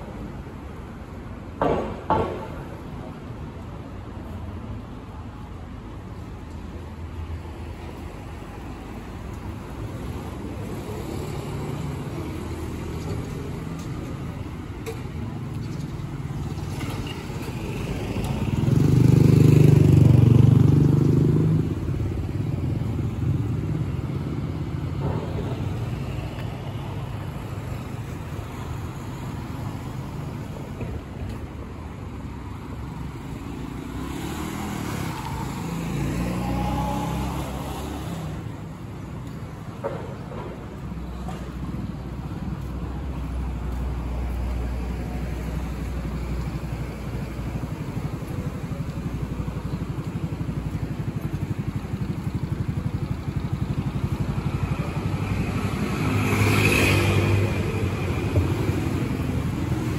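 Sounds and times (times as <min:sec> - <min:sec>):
street traffic rumbling: 0:00.0 - 0:59.9
vehicle passing close: 0:15.4 - 0:30.2, 0:32.9 - 0:38.8.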